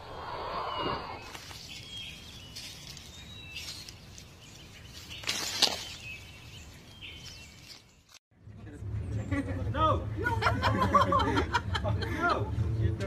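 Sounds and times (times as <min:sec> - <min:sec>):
outdoor ambience: 0:00.0 - 0:13.0
small birds chirping: 0:00.4 - 0:09.7.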